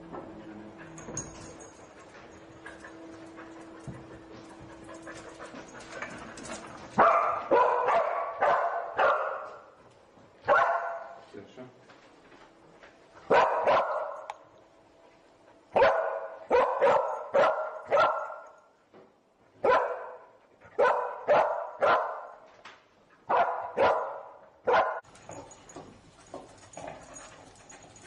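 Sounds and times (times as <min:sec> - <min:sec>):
dog barking: 0:07.0 - 0:09.6, 0:10.5 - 0:11.2, 0:13.3 - 0:14.3, 0:15.8 - 0:18.5, 0:19.6 - 0:22.4, 0:23.3 - 0:25.1.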